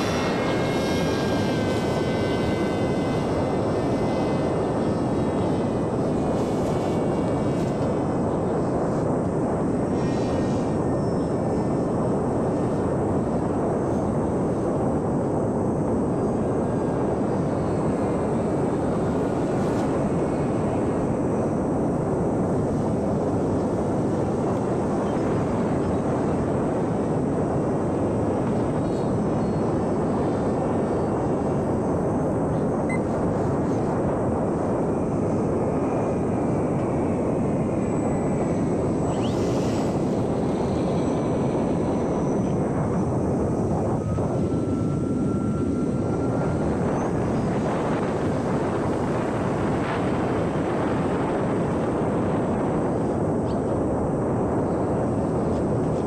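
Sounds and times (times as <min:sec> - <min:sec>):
propeller and air rush: 0:00.0 - 0:11.0, 0:31.3 - 0:46.0
faint motor whine: 0:00.0 - 0:56.0.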